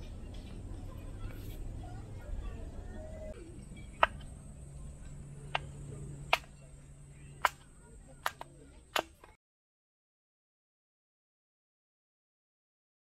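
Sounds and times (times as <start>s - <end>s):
hatchet splitting wood: 6.3s - 6.5s, 7.4s - 7.6s.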